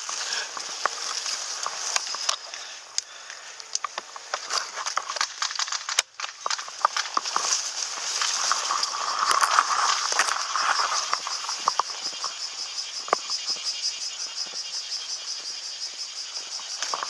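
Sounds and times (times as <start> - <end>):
grass rustling against person: 0.0 - 17.0
gun handling clicks and knocks: 3.6 - 7.4.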